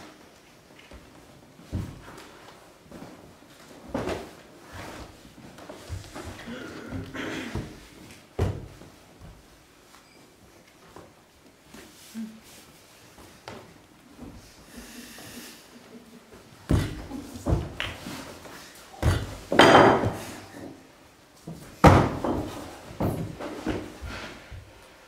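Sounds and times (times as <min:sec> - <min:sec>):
heavy thuds and knocks: 0:19.0 - 0:20.4, 0:21.5 - 0:24.0.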